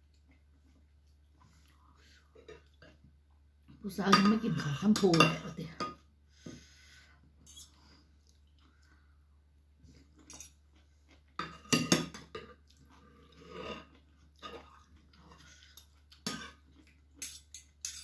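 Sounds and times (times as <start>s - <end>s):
chewing: 7.4s - 9.1s, 12.3s - 18.0s
cutlery clinking on ceramic dish: 11.4s - 12.6s, 17.2s - 18.0s.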